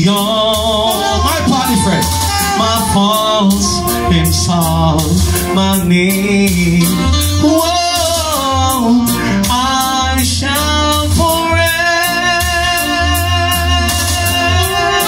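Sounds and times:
backing music with bass and beat: 0.0s - 15.0s
man singing into microphone: 0.0s - 15.0s.

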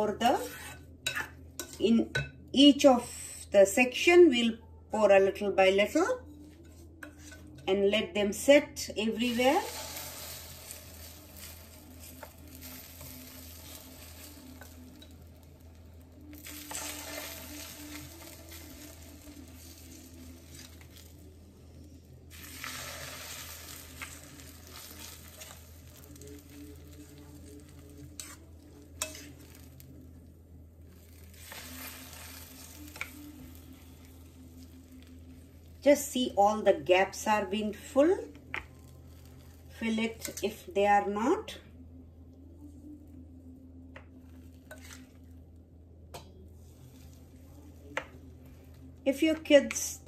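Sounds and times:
batter sizzling in waffle maker: 9.3s - 21.4s, 22.2s - 30.0s, 30.9s - 35.6s.

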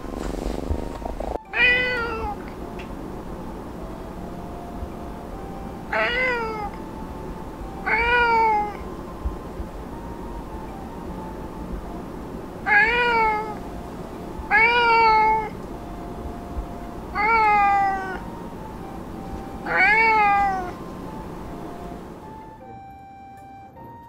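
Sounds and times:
cat meowing: 1.5s - 2.5s, 5.9s - 6.8s, 7.8s - 8.8s, 12.6s - 13.6s, 14.5s - 15.6s, 17.1s - 18.3s, 19.6s - 20.8s.

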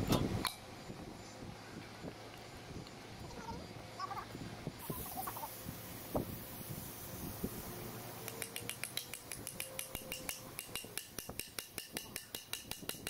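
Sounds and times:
hammer tapping metal: 8.2s - 13.0s.

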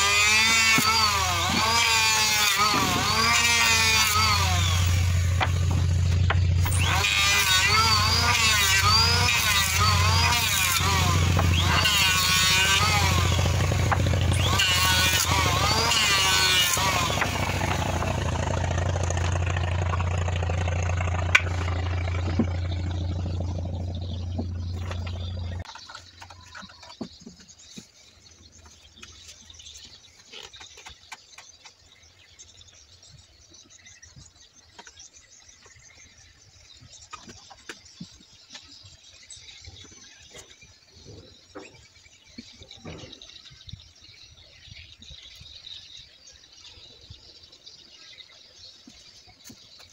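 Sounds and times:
electric planer shaving wood: 0.0s - 25.7s
small engine droning: 0.0s - 26.4s.

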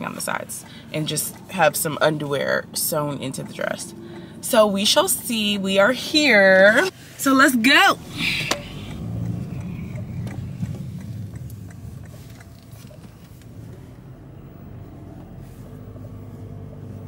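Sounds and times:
car engine and road rumble: 0.0s - 17.0s
faint ticks: 8.5s - 13.8s.

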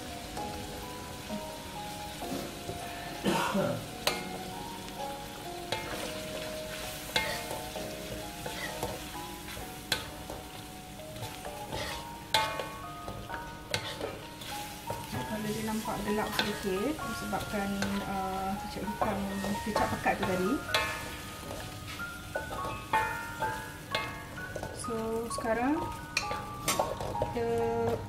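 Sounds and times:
frying sizzle: 0.0s - 28.0s
utensils scraping a wok: 5.7s - 10.5s, 11.2s - 12.8s, 13.7s - 25.1s, 25.8s - 27.9s.

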